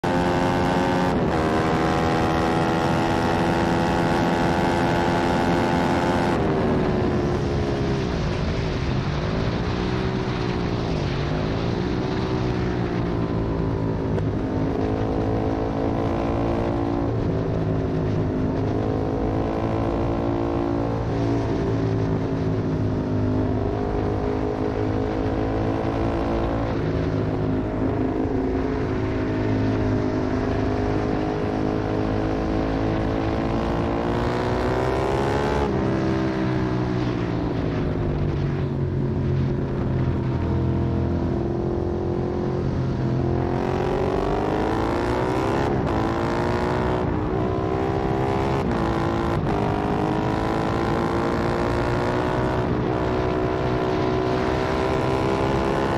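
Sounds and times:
motorcycle engine revving: 0.0 - 8.1, 40.0 - 55.9.

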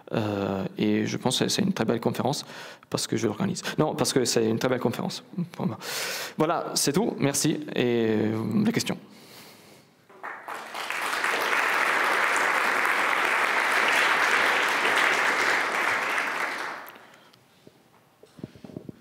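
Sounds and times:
audience applauding: 10.1 - 17.2.

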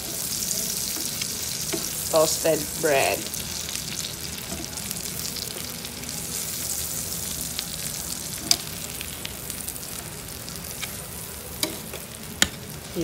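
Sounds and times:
utensil stirring in pan: 0.0 - 5.6
bread frying in butter: 0.0 - 13.0.

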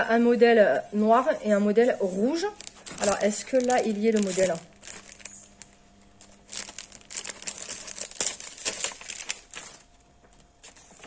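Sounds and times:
packaging crinkling: 2.4 - 11.0.

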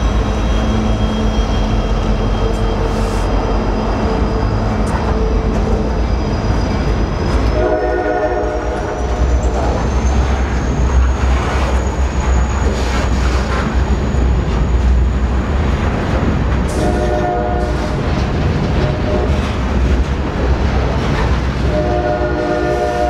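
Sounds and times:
freight train rolling past: 0.0 - 23.0
locomotive air horn: 7.6 - 9.0, 16.7 - 18.0, 21.6 - 23.0.

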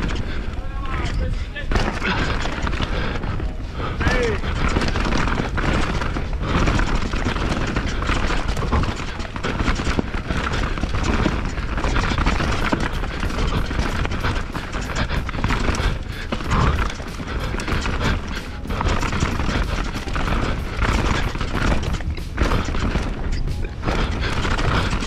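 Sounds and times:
bike clattering over bumps: 0.0 - 25.0
tyres and wind rumble: 0.0 - 25.0.

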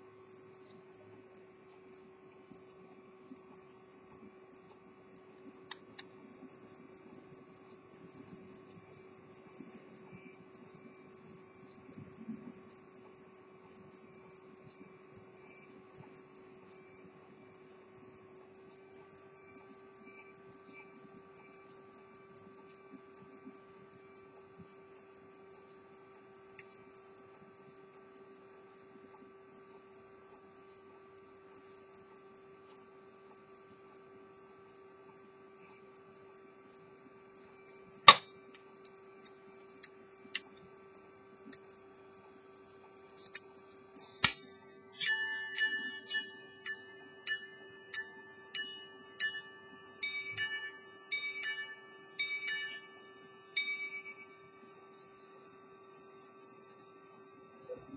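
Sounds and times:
pocket watch ticking: 0.0 - 57.9
sharp click: 5.7 - 7.8, 37.4 - 40.8, 42.6 - 48.2
watch gongs ringing: 45.0 - 54.4.

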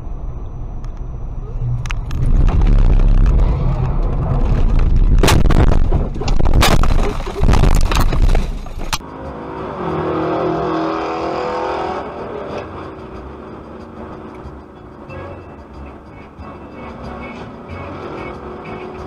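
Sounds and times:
car rumbling over rough ground: 0.0 - 9.1.

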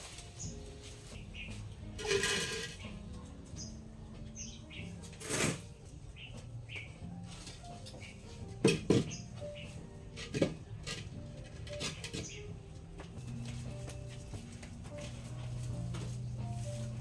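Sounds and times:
small birds chirping: 0.2 - 2.0, 2.8 - 5.1, 5.8 - 10.0, 11.9 - 13.4.

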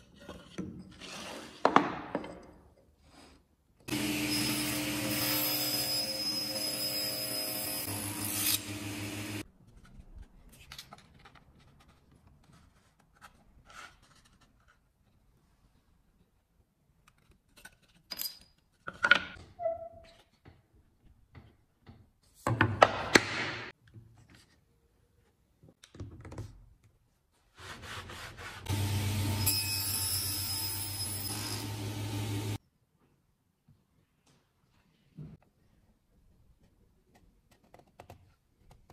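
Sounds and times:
woodworking power tool running: 3.9 - 9.4, 28.7 - 32.6.

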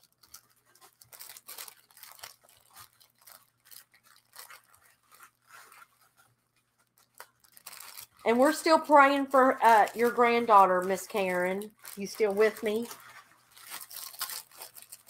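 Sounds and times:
plastic packaging crinkling: 0.0 - 15.0.

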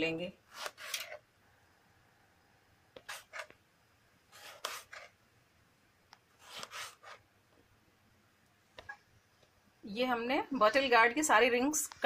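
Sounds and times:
knife slicing onto cutting board: 3.0 - 3.5, 4.4 - 5.1, 6.4 - 7.2.

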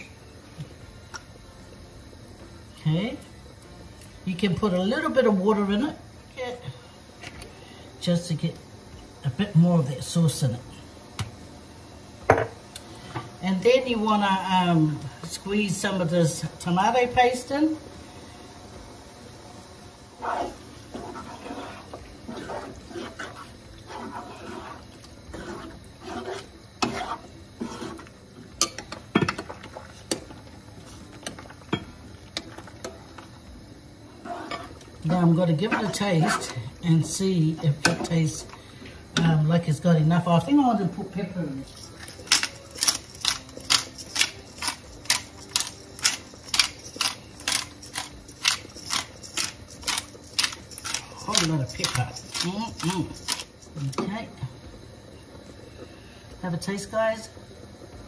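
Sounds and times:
wooden spoon scraping frying pan: 20.2 - 28.1, 34.2 - 34.8
pepper grinder grinding: 41.7 - 54.0.

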